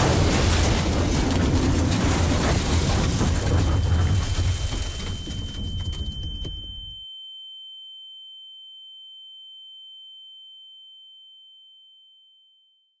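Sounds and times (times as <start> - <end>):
car crash: 0.0 - 6.8
high-pitched ringing tone: 3.6 - 13.0.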